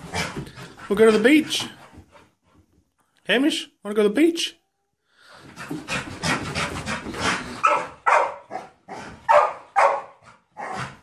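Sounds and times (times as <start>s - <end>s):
dog barking: 7.6s - 10.8s.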